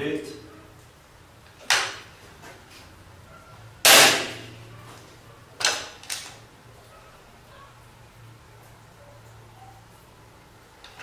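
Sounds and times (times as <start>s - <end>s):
air rifle firing: 3.8s - 4.6s.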